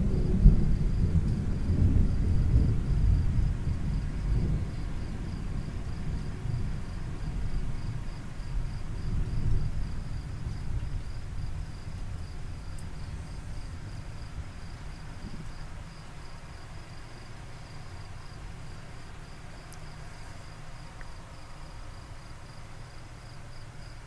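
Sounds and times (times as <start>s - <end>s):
thunder rumble: 0.0s - 18.8s
crickets chirping: 0.0s - 24.0s.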